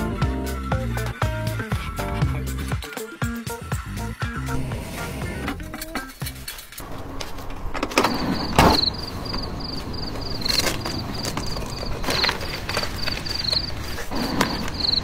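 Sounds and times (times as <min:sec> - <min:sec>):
cricket chirping: 0:08.0 - 0:15.0.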